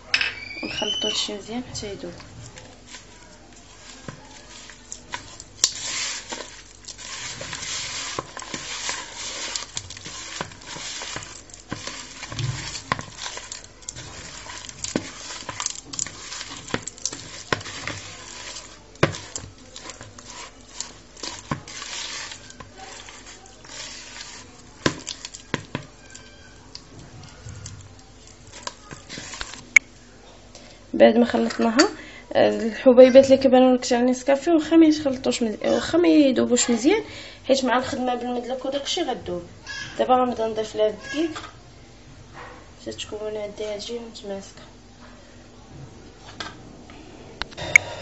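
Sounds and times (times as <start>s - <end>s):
mix scraping bowl: 0.6s - 30.1s
hand squishing butter in bowl: 0.7s - 30.2s.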